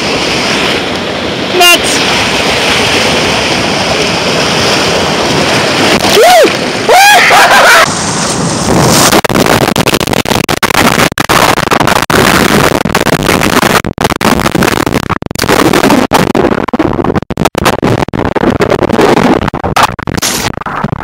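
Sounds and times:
water rushing and churning: 0.0 - 21.0.

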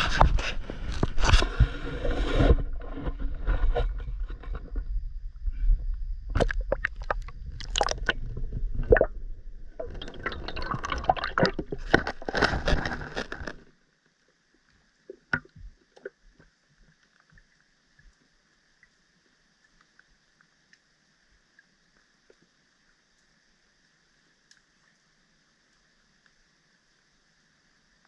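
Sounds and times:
low rumble: 0.0 - 12.0
water sloshing and splashing: 6.3 - 13.8
underwater hush: 6.4 - 12.2
light clicks underwater: 24.4 - 25.0.

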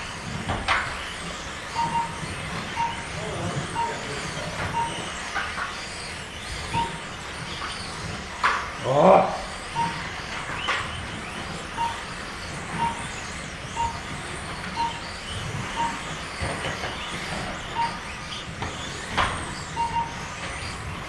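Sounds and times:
electric motors whining: 0.0 - 21.0
short electronic beep: 1.8 - 5.2, 6.7 - 7.1, 9.7 - 10.7, 11.8 - 13.2, 13.8 - 16.2, 16.9 - 18.1, 19.8 - 20.3.

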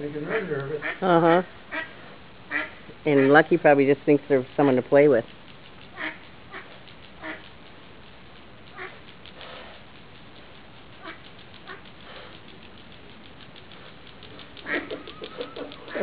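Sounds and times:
steady background hiss: 0.0 - 16.0
duck quacking: 0.2 - 1.9, 2.5 - 3.5, 5.9 - 7.4.

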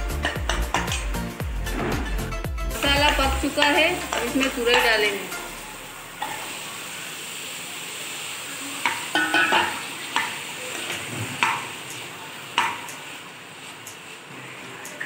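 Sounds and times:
ladle scraping and knocking pan: 0.0 - 5.0, 8.9 - 11.7
frying sizzle: 0.0 - 15.0.

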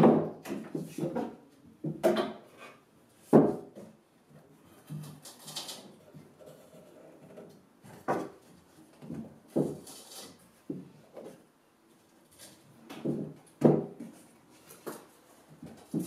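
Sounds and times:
wooden knocks and clunks: 0.0 - 2.5, 12.9 - 14.2.

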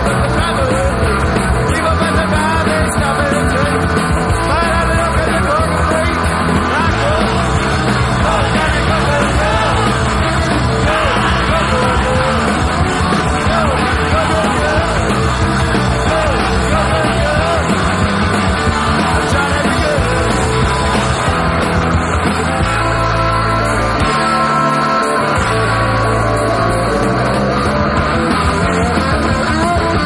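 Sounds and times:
person singing: 0.0 - 21.2
loud rock music: 0.0 - 30.0.

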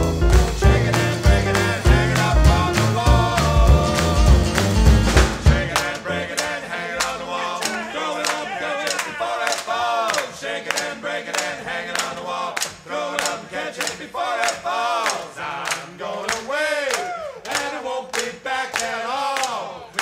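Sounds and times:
heavy bass of band: 0.0 - 5.9
group of voices singing: 0.0 - 20.0
steady handclaps: 0.1 - 20.0.

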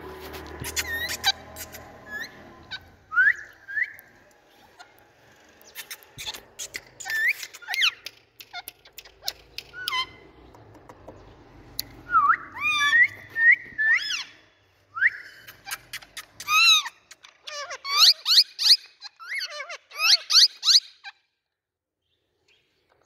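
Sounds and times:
parakeets whistling and chirping: 0.6 - 4.1, 5.7 - 8.0, 12.0 - 14.4, 15.0 - 21.1
harsh parakeet squawk: 16.4 - 21.2.

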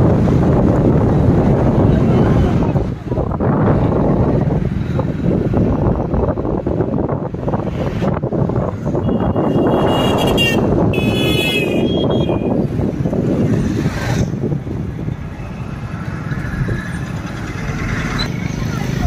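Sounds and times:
rumble of surrounding traffic: 0.0 - 19.0
wind noise: 0.0 - 19.0
vehicle horn tones: 9.0 - 12.5.

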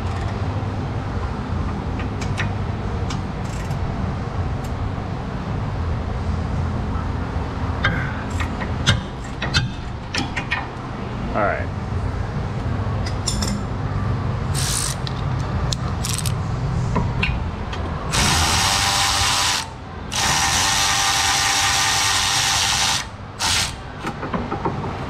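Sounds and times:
electric ratchet spinning: 14.6 - 15.1, 18.1 - 23.8.

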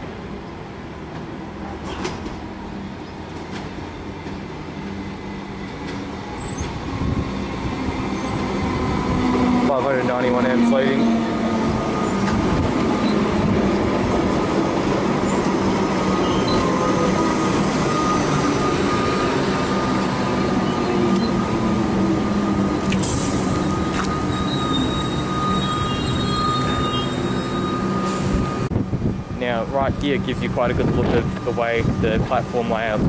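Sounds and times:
electric train rumbling past: 0.0 - 33.0
high wheel squeal: 15.2 - 21.5, 22.2 - 28.7.

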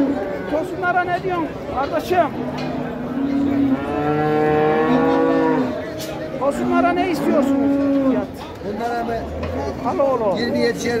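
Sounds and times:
cattle mooing: 2.8 - 8.3.

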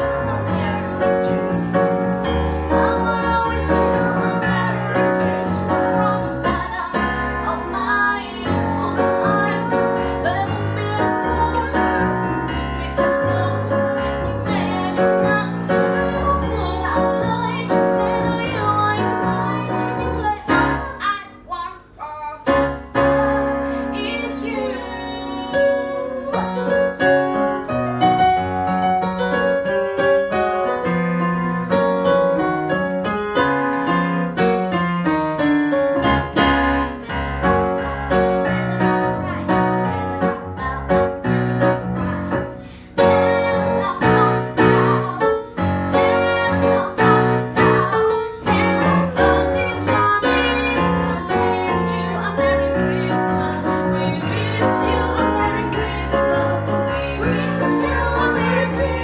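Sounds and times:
piano accompaniment: 0.0 - 59.0
woman singing: 2.6 - 26.9, 36.4 - 59.0.

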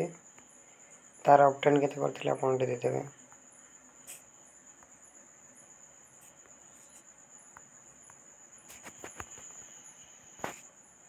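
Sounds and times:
insect trill: 0.0 - 11.0.

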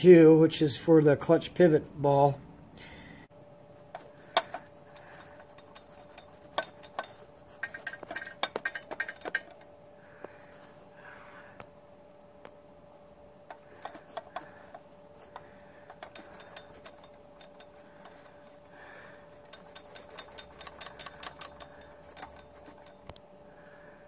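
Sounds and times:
faint steady hum: 0.0 - 24.0
metal bearing clinking: 3.9 - 9.7, 13.5 - 23.2.

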